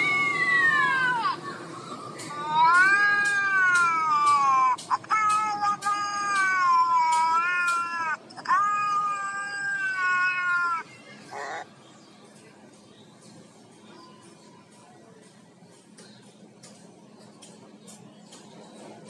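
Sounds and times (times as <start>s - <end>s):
cat yowling: 0.0s - 1.4s, 2.3s - 11.7s.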